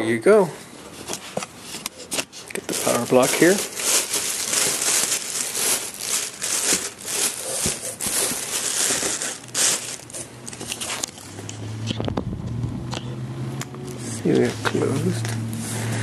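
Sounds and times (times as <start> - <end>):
plastic wrapping crinkling: 1.9 - 11.2.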